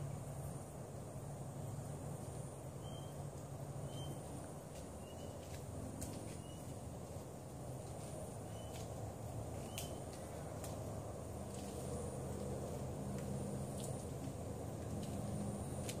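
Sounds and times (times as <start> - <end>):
high insect whine: 0.0 - 16.0
bird chirping: 2.8 - 5.5, 6.3 - 6.8, 8.4 - 8.9, 9.6 - 10.2.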